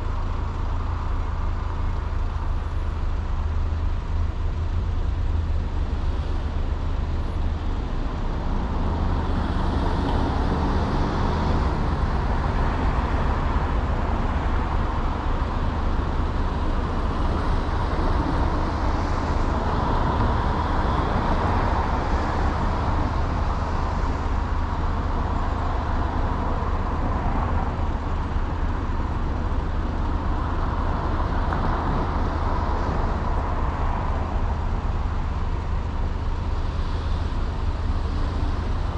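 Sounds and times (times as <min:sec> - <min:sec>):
tyre and road noise: 0:00.0 - 0:38.9.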